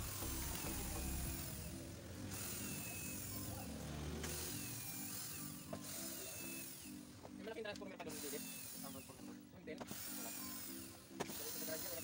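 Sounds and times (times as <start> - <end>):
cordless drill running: 0.0 - 7.2, 8.0 - 12.0.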